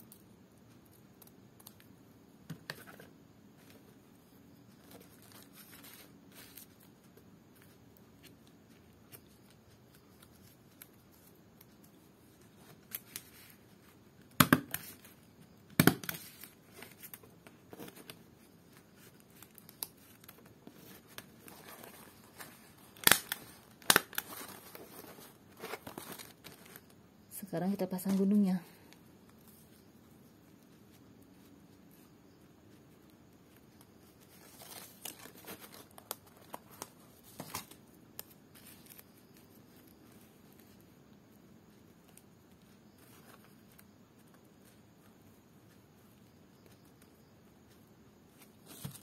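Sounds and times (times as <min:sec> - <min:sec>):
leaf strips rustling: 0:04.6 - 0:14.0, 0:16.1 - 0:27.0, 0:33.4 - 0:40.8.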